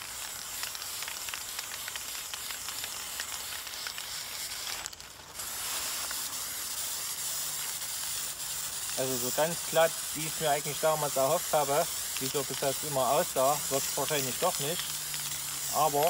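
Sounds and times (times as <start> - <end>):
spray-paint can hissing: 0.0 - 16.0.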